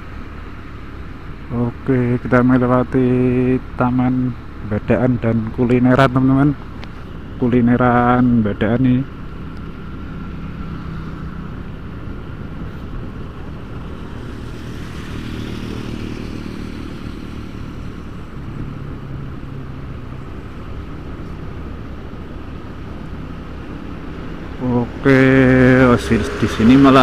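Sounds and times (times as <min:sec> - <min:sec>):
road and wind noise: 0:00.0 - 0:27.0
motorcycle engine running: 0:09.2 - 0:27.0.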